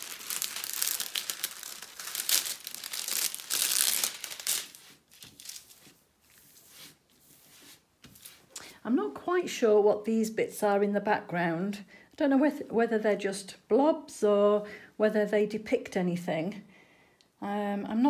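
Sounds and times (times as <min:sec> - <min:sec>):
plastic film crinkling: 0:00.0 - 0:06.8
hands rustling film: 0:00.0 - 0:08.6.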